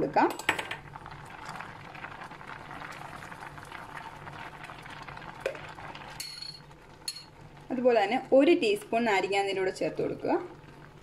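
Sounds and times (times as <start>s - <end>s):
water boiling in a pot: 0.0s - 11.0s.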